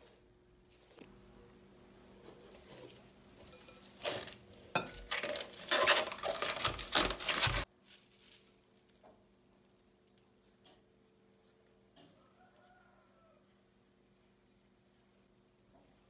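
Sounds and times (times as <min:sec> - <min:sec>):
scraping against glass bowl: 0:02.3 - 0:06.1.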